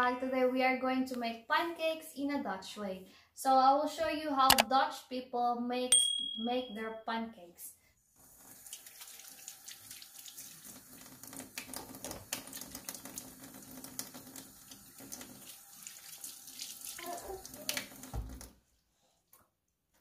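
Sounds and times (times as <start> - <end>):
tap running into sink: 17.7 - 18.5.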